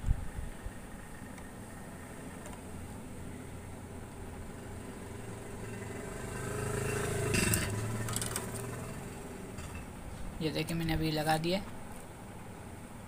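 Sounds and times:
vehicle engine passing by: 0:03.3 - 0:09.9.

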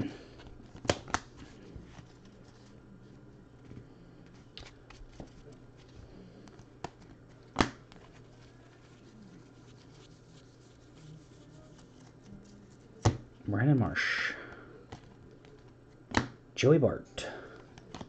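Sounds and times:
faint steady hum: 0:00.0 - 0:18.0
cards rustling and sliding: 0:00.3 - 0:13.2.

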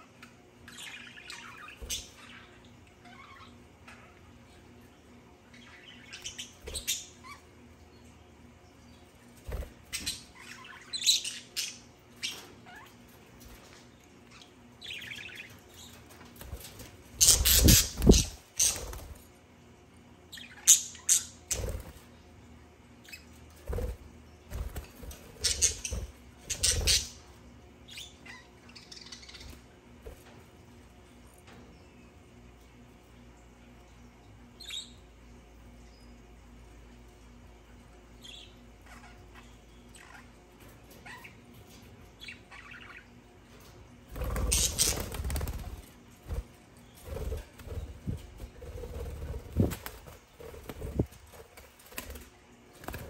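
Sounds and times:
budgerigars chirping and squawking: 0:00.0 - 0:04.4, 0:05.6 - 0:07.6, 0:09.5 - 0:19.2, 0:20.4 - 0:22.0, 0:24.7 - 0:27.3, 0:38.2 - 0:45.8
bird wingbeats: 0:16.3 - 0:19.3, 0:44.1 - 0:53.0.

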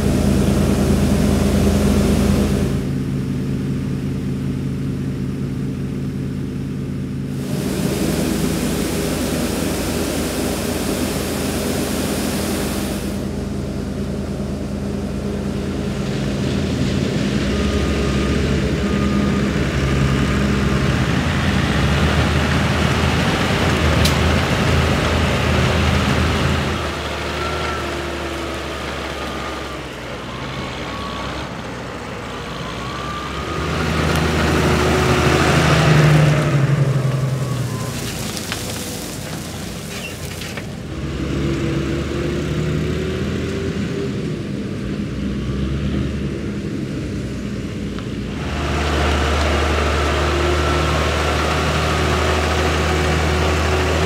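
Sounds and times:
diesel engines droning: 0:00.0 - 0:54.0
hissing rush: 0:07.4 - 0:13.5.

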